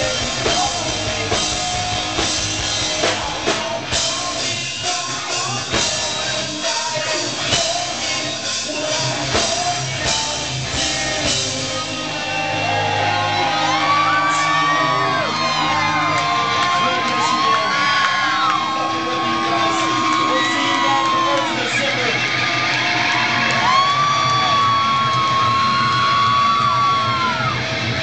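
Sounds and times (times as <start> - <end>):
person singing: 0.0 - 22.2
drum kit beat: 0.0 - 22.4
electric guitars: 0.0 - 28.0.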